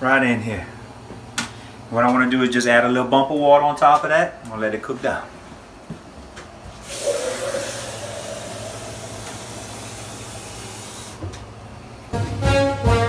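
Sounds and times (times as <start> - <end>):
hot stew hissing and sizzling: 6.8 - 11.2
brass music: 12.2 - 13.0.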